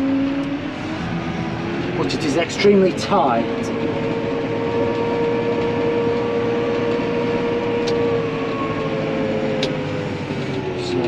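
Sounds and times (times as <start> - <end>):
held whine: 0.0 - 11.0
tractor engine drone: 0.0 - 11.0.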